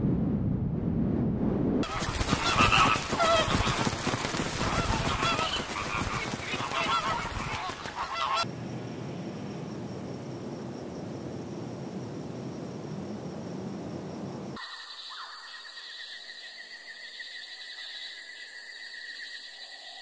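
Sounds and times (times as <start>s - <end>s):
splashing water: 1.8s - 8.4s
flamingos honking: 1.8s - 8.5s
wings flapping: 1.8s - 8.5s.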